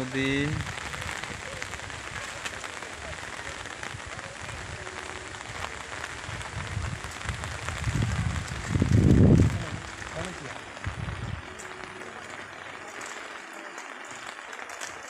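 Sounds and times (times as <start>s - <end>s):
low rumbling on microphone: 0.0s - 12.0s
steady rain falling: 0.0s - 15.0s.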